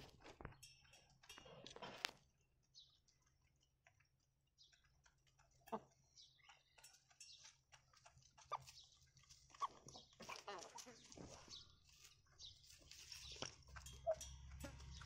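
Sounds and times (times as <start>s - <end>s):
chickens pecking on gravel: 0.0s - 15.0s
chickens clucking: 4.8s - 15.0s.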